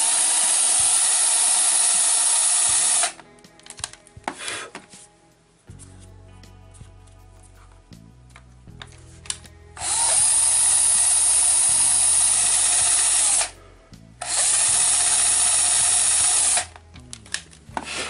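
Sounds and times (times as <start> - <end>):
electric drill boring into plastic: 0.0 - 3.2, 9.8 - 13.6, 14.2 - 16.8.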